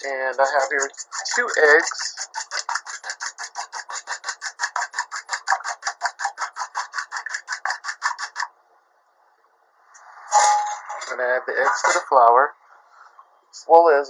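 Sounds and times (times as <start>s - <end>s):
whisk scraping metal bowl: 0.0s - 8.5s.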